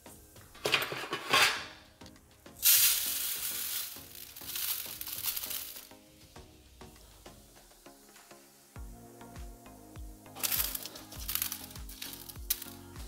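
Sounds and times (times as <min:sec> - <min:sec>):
beads scattering onto a metal tray: 0:02.6 - 0:06.0, 0:10.4 - 0:13.0.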